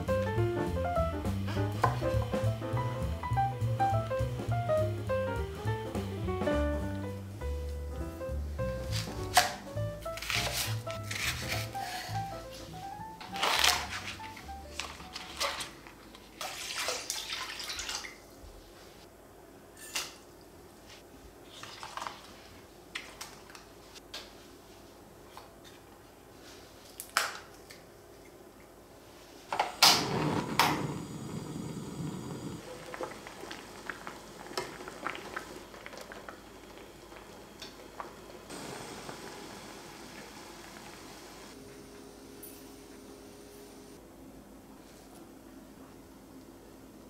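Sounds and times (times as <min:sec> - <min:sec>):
water splashing in a pot: 0:16.4 - 0:18.3, 0:32.6 - 0:41.3
pot bubbling quietly: 0:30.1 - 0:41.6.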